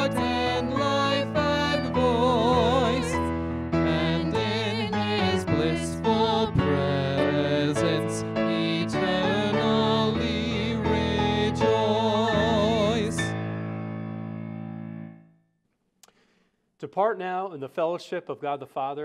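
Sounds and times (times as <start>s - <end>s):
man and woman singing hymn: 0.0s - 13.3s
digital piano accompaniment: 0.0s - 15.3s.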